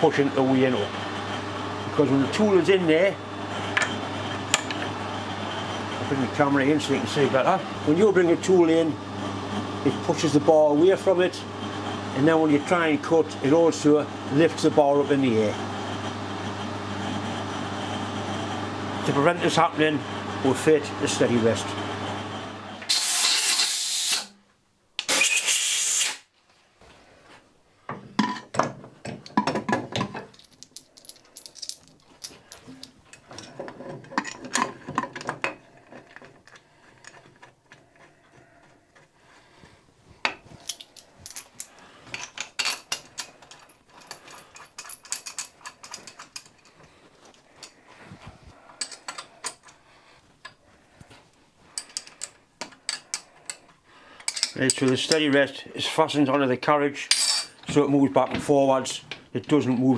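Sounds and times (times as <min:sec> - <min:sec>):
metal clicks and clinks: 0:30.2 - 0:35.3, 0:40.6 - 0:47.8.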